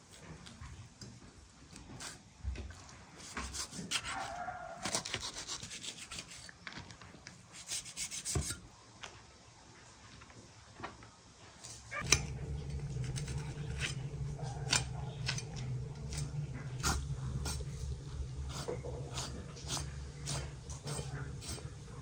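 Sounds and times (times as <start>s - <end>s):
knife scraping meat from bone: 13.0s - 22.0s.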